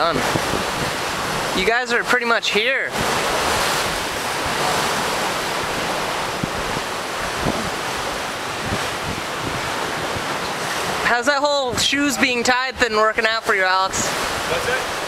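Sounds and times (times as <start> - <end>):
wind buffeting microphone: 0.0 - 1.8, 2.9 - 12.3
ocean surf washing against rocks: 0.0 - 15.0.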